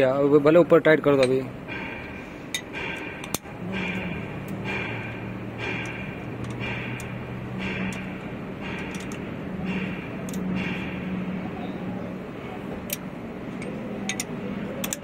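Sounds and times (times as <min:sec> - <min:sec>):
steady low hum: 0:00.0 - 0:15.0
socket ratchet clicking: 0:01.8 - 0:11.0, 0:12.8 - 0:15.0.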